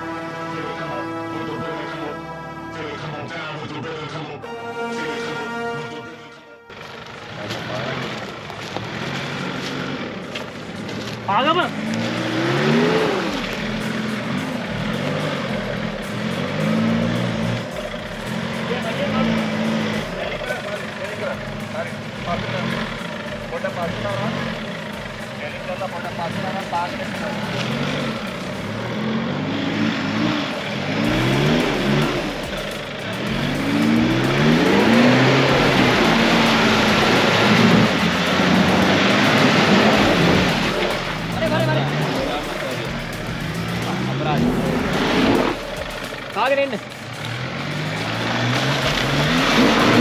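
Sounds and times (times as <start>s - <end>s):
track and tyre noise: 0.0s - 50.0s
vehicle engine revving: 0.0s - 50.0s.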